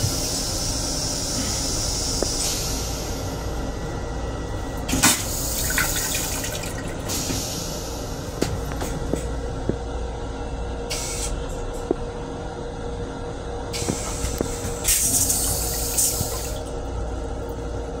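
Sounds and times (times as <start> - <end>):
train rumbling: 0.0 - 18.0
toilet flush whoosh: 4.9 - 7.7
rinse water hissing: 13.8 - 16.6.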